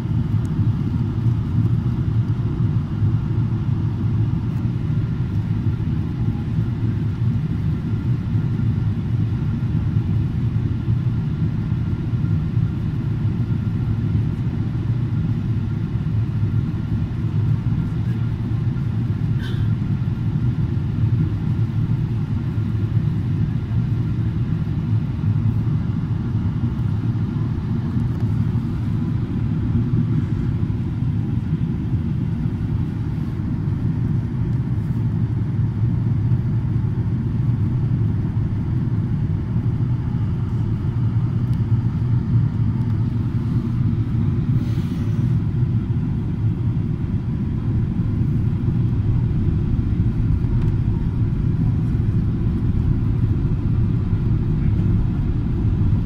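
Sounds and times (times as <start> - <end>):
aircraft cabin engine rumble: 0.0 - 56.0.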